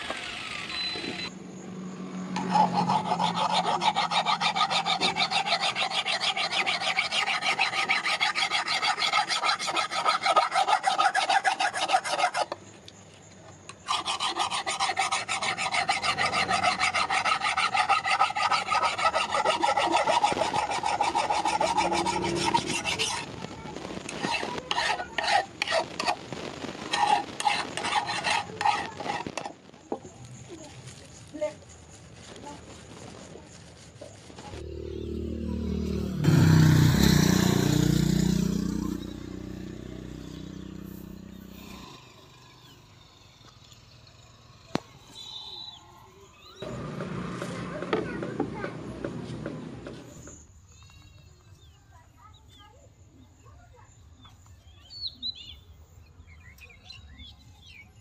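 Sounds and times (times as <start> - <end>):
file rasping on steel blade: 2.4 - 12.6, 13.8 - 23.3, 24.2 - 26.2, 26.9 - 29.5.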